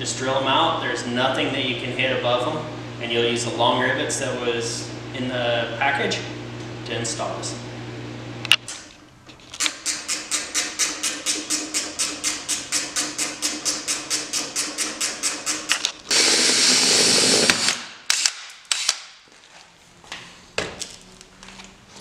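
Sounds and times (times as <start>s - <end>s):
ratchet wrench clicking: 9.6s - 16.9s
power drill running: 9.6s - 19.1s.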